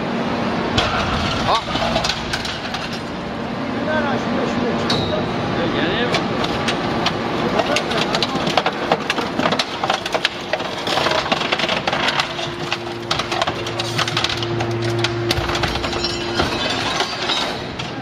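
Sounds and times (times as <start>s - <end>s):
steady hum: 0.0s - 18.0s
metal pieces clattering: 0.8s - 3.1s, 7.6s - 18.0s
scrap metal shear cutting: 10.4s - 18.0s.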